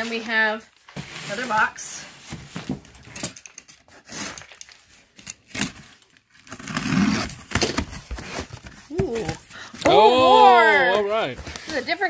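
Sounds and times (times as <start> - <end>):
cardboard box rustling and crinkling: 7.4 - 12.0.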